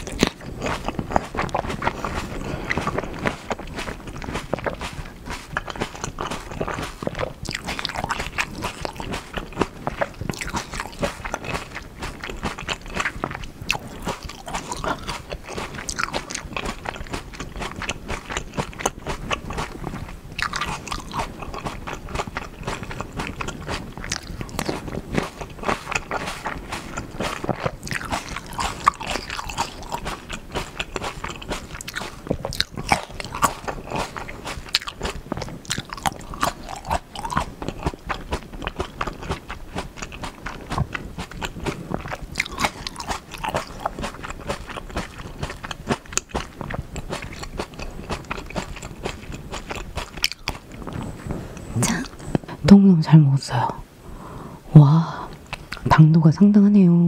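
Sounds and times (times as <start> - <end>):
chewing grapes wet mouth clicks: 0.0 - 51.0, 55.3 - 55.9.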